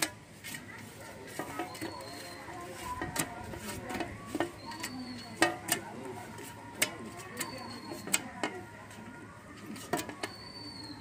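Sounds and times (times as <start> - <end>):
faint bird whistling: 1.5 - 2.7, 4.5 - 5.4, 7.3 - 8.3, 10.1 - 11.0.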